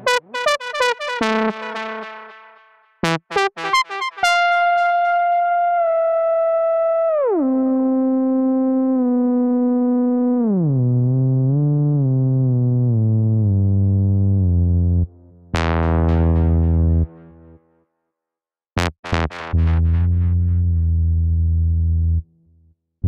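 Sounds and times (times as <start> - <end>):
low synthesizer note sharp attack: 0.0 - 5.4, 14.9 - 17.5
synthesizer note gliding down: 0.0 - 12.6.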